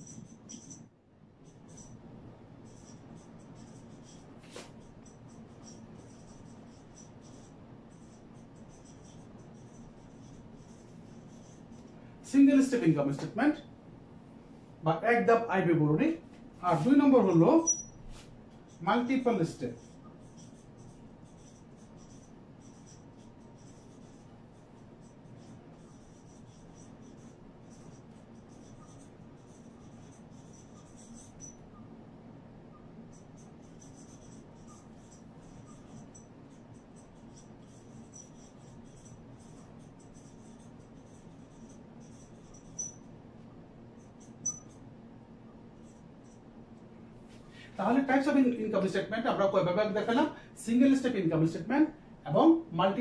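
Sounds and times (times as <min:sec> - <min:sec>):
marker squeaking on whiteboard: 0:00.0 - 0:02.0, 0:02.6 - 0:12.0, 0:16.6 - 0:31.9, 0:32.7 - 0:43.2, 0:43.9 - 0:44.9, 0:45.5 - 0:46.5.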